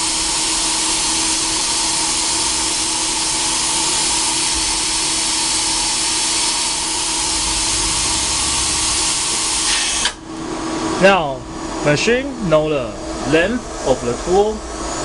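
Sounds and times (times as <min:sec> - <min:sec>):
milling machine hiss: 0:02.0 - 0:10.2
milling machine hum: 0:06.3 - 0:10.5.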